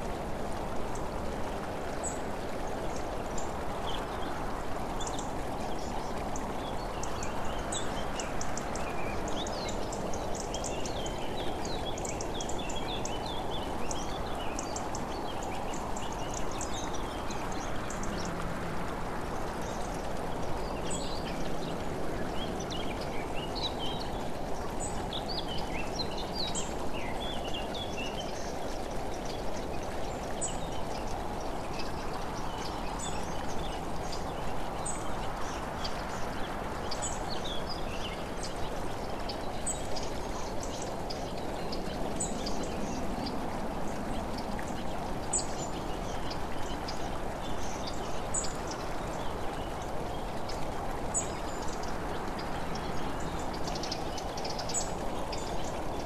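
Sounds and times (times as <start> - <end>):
birds chirping: 19.4 - 56.0.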